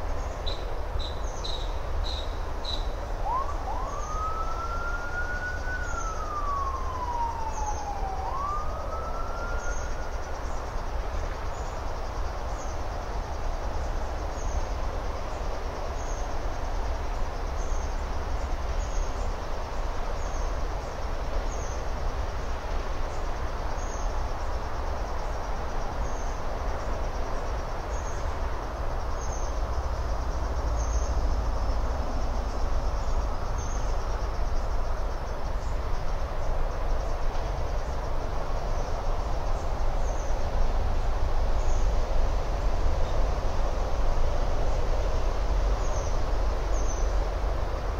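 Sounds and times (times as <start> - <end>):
steady hiss with low rumble: 0.0 - 47.9
emergency vehicle siren wailing: 3.2 - 10.2.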